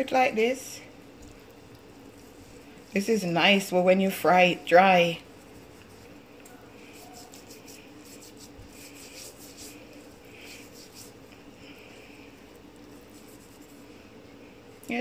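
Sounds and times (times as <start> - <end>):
hands rubbing fish skin: 5.3 - 14.0.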